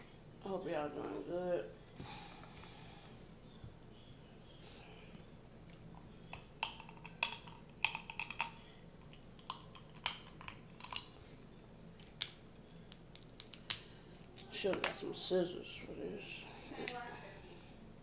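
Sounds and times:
crab shells cracking: 6.2 - 11.2, 12.0 - 14.4.

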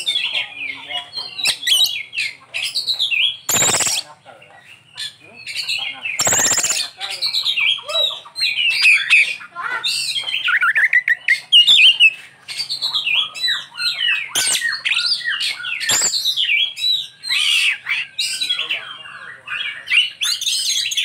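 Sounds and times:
bird singing whistles and chirps: 3.0 - 4.1, 6.2 - 7.0, 14.2 - 18.6.

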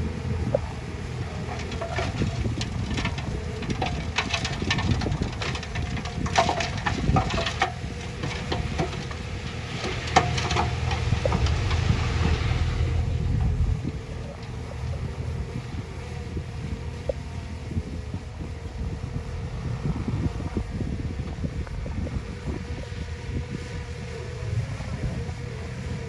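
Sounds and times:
truck engine running: 0.0 - 26.0
soil pouring with clatters: 1.5 - 14.6.

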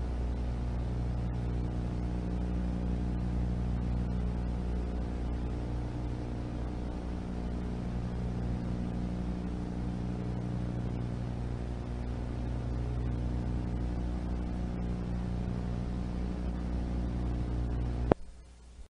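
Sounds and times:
steady electrical hum: 0.0 - 18.9
tape hiss: 0.0 - 18.9.

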